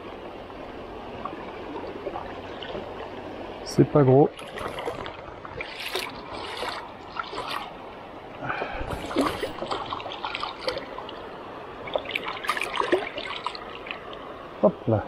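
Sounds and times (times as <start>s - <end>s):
river water trickling: 0.0s - 15.0s
fish splashing in water: 4.4s - 7.8s, 8.5s - 11.2s, 11.8s - 14.2s.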